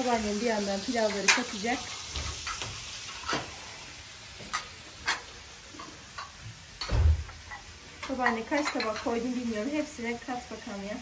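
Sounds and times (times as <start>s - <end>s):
serving spoon clinking on plates: 7.5s - 9.1s.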